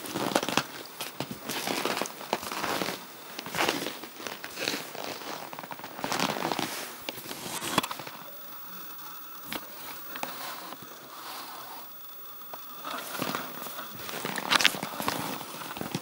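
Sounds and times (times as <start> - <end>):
footsteps crunching on snow: 0.0 - 8.1.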